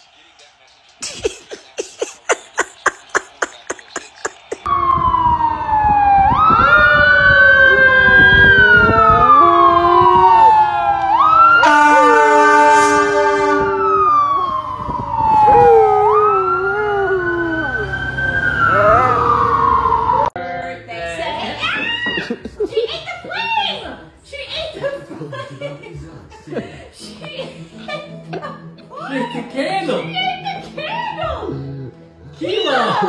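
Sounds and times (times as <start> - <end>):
fire engine siren wailing: 4.7 - 20.4
horn blast: 11.6 - 14.0.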